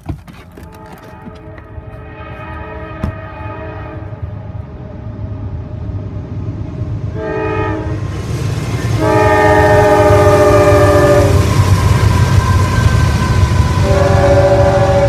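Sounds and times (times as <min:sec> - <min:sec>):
low locomotive engine rumble: 0:00.0 - 0:15.0
locomotive air horn blasts: 0:00.7 - 0:04.4, 0:07.2 - 0:08.0, 0:09.0 - 0:15.0.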